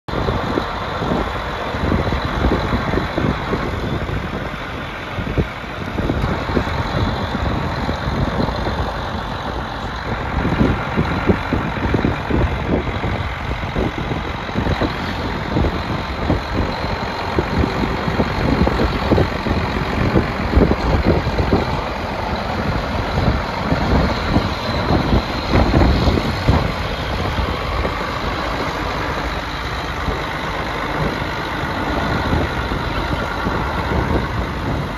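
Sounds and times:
tractor diesel engine running: 0:00.0 - 0:34.9
tracks rolling on gravel: 0:00.1 - 0:34.9.

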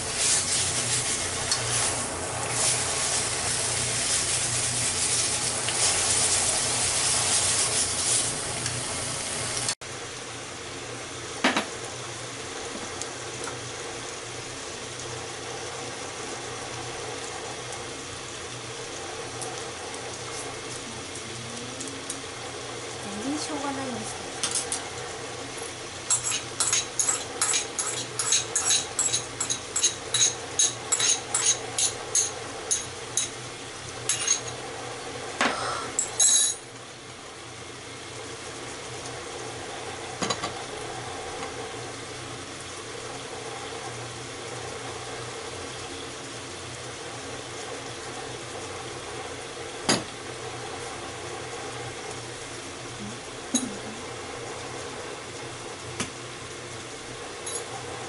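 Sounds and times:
food frying hiss: 0:00.0 - 0:58.0
metal spatula scraping frying pan: 0:26.1 - 0:32.3.

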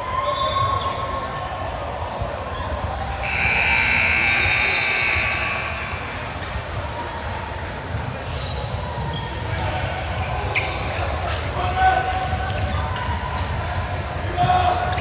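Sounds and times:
shrill signal tone: 0:03.2 - 0:06.5.

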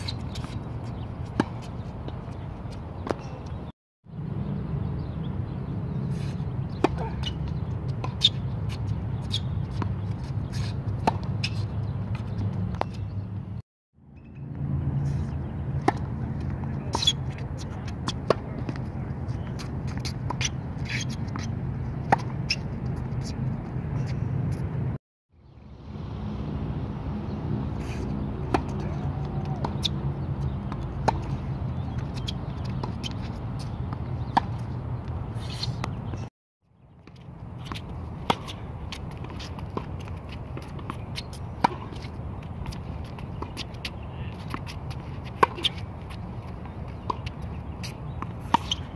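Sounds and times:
racket hitting tennis ball: 0:06.7 - 0:13.2, 0:27.9 - 0:36.2, 0:37.1 - 0:48.9.

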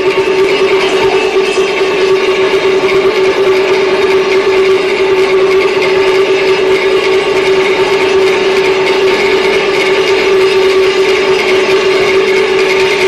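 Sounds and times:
gongs and cymbals rolling: 0:00.0 - 0:06.2.

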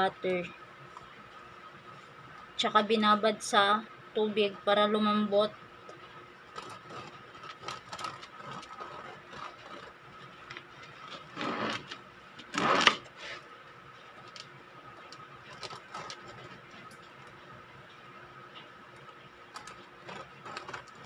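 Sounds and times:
crackly bread crust bursts: 0:06.0 - 0:17.4, 0:18.5 - 0:21.0
bread knife sawing crust: 0:06.5 - 0:10.0, 0:11.2 - 0:13.4.

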